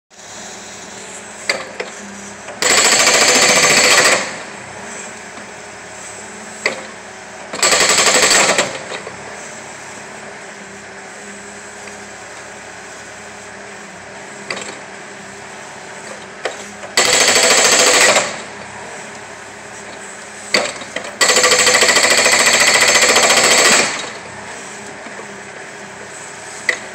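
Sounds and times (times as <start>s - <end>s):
machine engine running: 0.2s - 26.9s
hydraulic breaker hammering wood: 1.4s - 1.9s, 2.5s - 4.6s, 6.6s - 9.2s, 16.0s - 18.7s, 20.5s - 25.4s, 26.6s - 26.9s.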